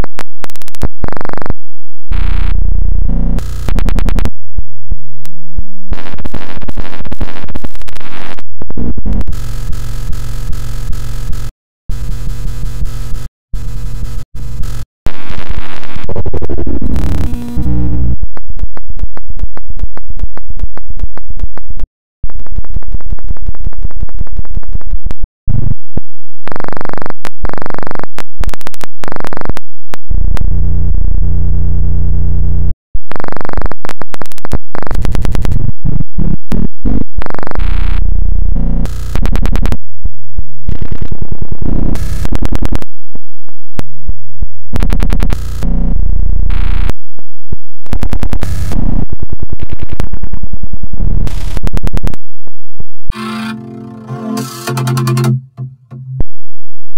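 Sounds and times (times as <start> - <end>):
distorted stuttering synth music: 53.2 - 56.2.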